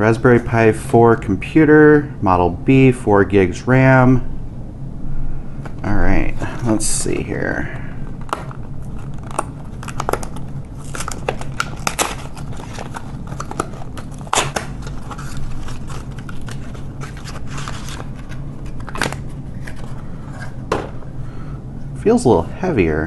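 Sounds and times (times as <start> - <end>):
steady low hum: 0.0 - 23.0
sharp cardboard snaps: 9.2 - 17.3.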